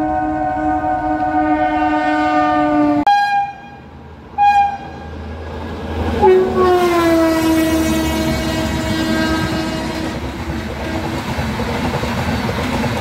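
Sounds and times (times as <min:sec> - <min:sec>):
locomotive air horn falling pitch: 0:00.0 - 0:05.1, 0:06.2 - 0:11.2
long train horn note: 0:00.0 - 0:05.1, 0:06.2 - 0:11.4
short higher horn toots: 0:00.0 - 0:05.1, 0:06.2 - 0:10.2
low rumble of train: 0:00.0 - 0:13.0.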